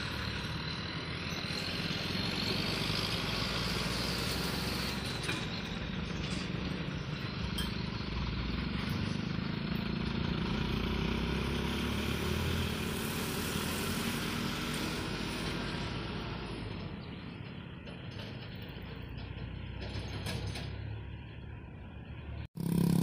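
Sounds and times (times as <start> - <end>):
diesel truck engine running: 0.0 - 23.0.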